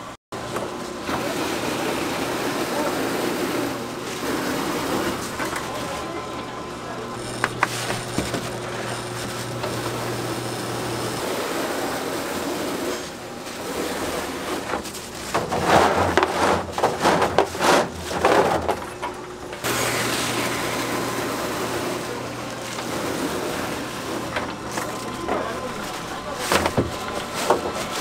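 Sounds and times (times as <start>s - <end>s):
shop equipment humming: 0.0s - 28.0s
rustling and clatter on a tray: 7.2s - 10.0s, 13.5s - 19.2s, 24.1s - 28.0s.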